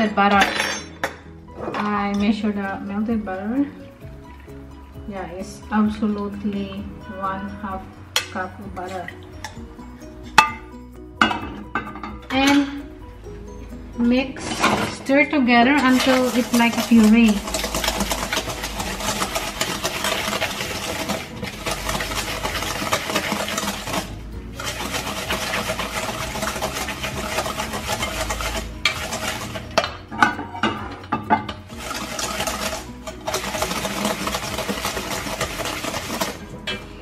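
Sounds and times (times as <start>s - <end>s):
whisk scraping metal bowl: 14.3s - 36.8s.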